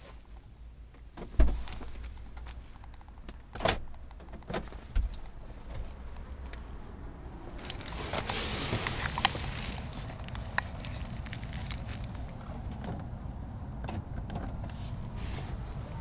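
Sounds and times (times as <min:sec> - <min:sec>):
street ambience: 0:00.0 - 0:16.0.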